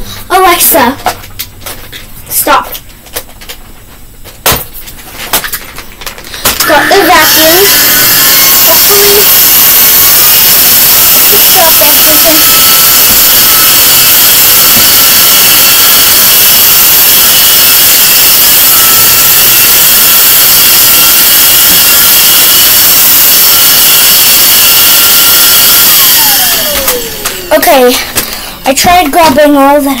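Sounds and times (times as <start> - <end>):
vacuum cleaner running: 6.4 - 29.4.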